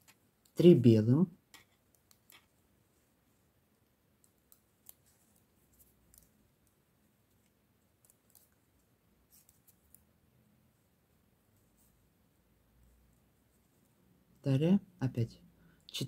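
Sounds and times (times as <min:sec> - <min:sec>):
knitting needles clicking: 0:00.0 - 0:00.6, 0:01.5 - 0:02.6, 0:03.8 - 0:10.1.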